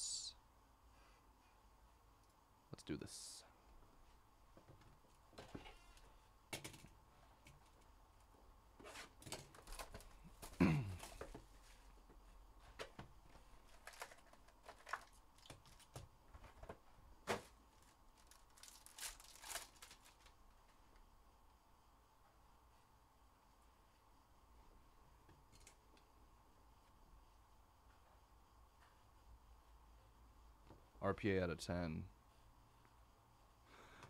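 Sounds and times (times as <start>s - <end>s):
cardboard and foil rustling: 13.6s - 20.4s.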